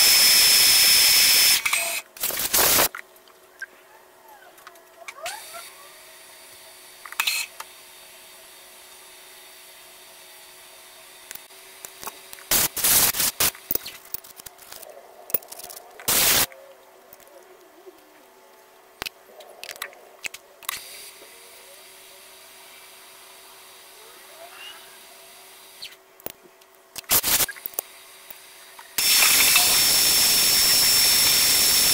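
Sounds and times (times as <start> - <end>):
faint steady hum: 0.0 - 31.9
loud air hissing blasts: 12.5 - 13.5, 16.1 - 16.5, 27.1 - 27.5, 29.0 - 31.9.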